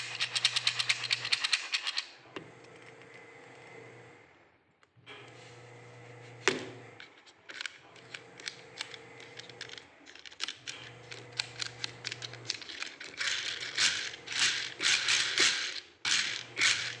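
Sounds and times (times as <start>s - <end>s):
abacus beads clacking: 8.8s - 17.0s.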